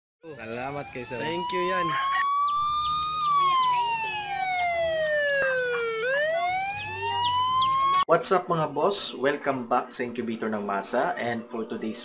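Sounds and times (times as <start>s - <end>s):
siren-like gliding tone: 0.3s - 8.0s.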